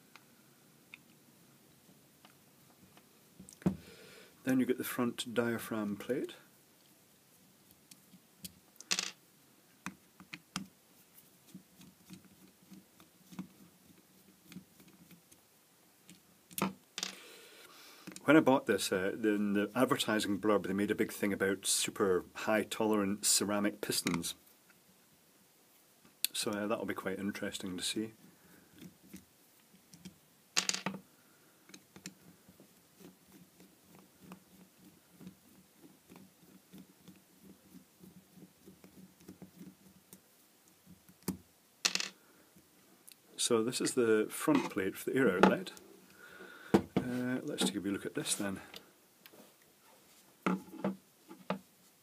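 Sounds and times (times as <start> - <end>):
faint scraping and ticking: 26.2 - 51.6.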